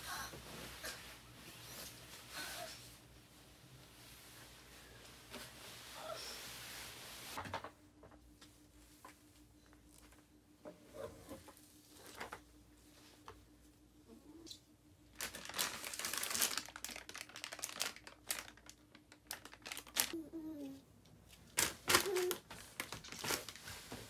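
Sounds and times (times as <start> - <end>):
plastic wipes pack crinkling: 15.2 - 20.2, 21.4 - 24.0.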